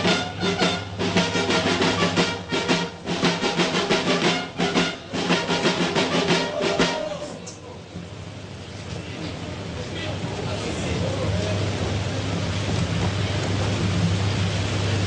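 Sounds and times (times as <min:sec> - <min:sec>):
snare and field drumbeats: 0:00.0 - 0:07.3
military band playing: 0:00.0 - 0:07.5.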